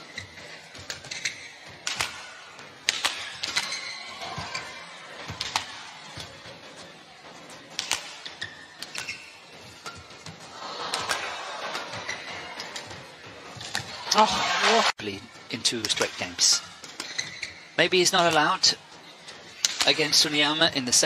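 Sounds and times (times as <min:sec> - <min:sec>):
shoes squeaking on court: 0:00.0 - 0:14.4, 0:15.1 - 0:20.6
racket hitting shuttlecock: 0:00.1 - 0:06.5, 0:07.7 - 0:14.4, 0:19.6 - 0:20.0.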